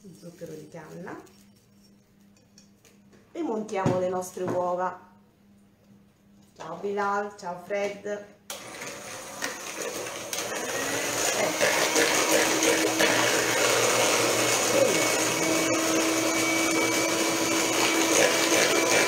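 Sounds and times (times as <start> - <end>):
electric hand mixer whirring: 8.5 - 19.0.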